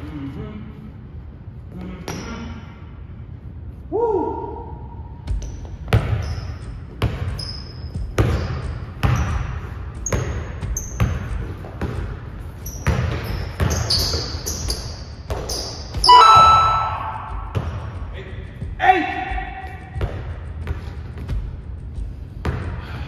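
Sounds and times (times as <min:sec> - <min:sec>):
sneaker squeaks: 0:01.8 - 0:02.6, 0:05.2 - 0:17.9
sharp squeal: 0:13.6 - 0:17.4.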